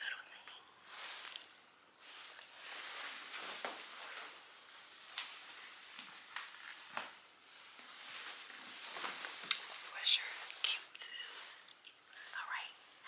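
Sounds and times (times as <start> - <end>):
coat rustling: 1.9 - 11.6.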